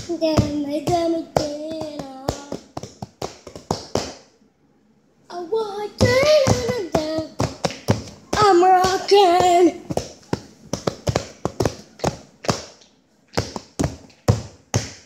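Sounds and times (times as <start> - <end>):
boy singing in high voice: 0.0 - 2.9, 5.3 - 10.0
hand slaps: 1.4 - 4.3.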